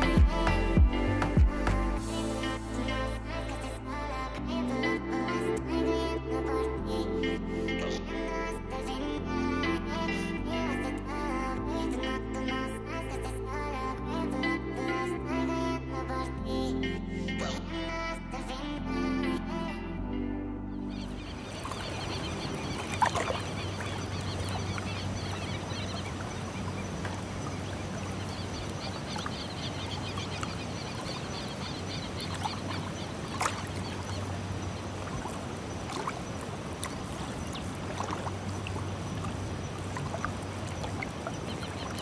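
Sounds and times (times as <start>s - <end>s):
birds calling: 20.8s - 42.0s.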